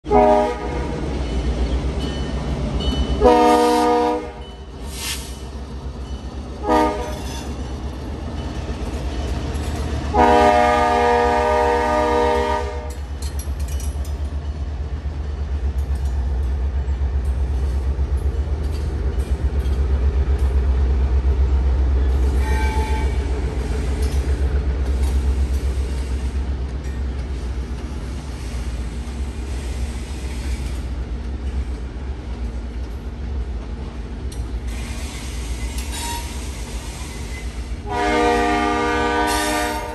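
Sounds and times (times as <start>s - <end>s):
locomotive horn: 0.0s - 1.0s, 3.2s - 4.5s, 6.6s - 7.5s, 10.1s - 13.1s, 22.2s - 23.3s, 37.8s - 39.9s
train rumbling past: 0.1s - 39.9s
wheels clicking over rail joints: 7.0s - 10.2s, 12.8s - 29.2s.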